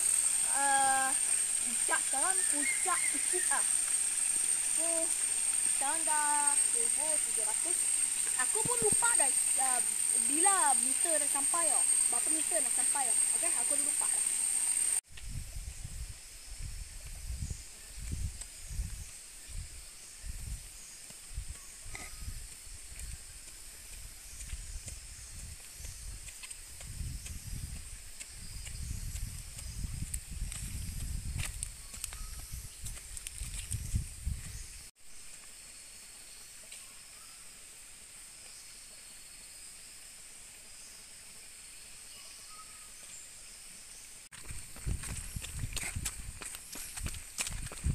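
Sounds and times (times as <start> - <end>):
footsteps on forest trail: 0.0 - 14.9, 20.2 - 35.6, 44.3 - 47.9
high-pitched insect hum: 0.0 - 47.9.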